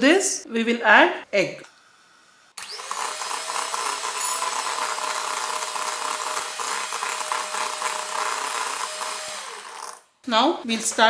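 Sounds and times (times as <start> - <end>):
electric hand mixer whisking: 2.6 - 10.0.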